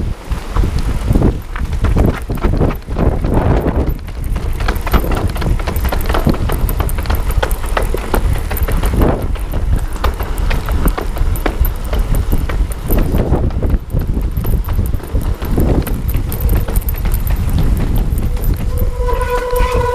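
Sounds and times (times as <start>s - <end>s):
bike rattling over cobbles: 0.0s - 19.9s
low rumble: 15.4s - 19.9s.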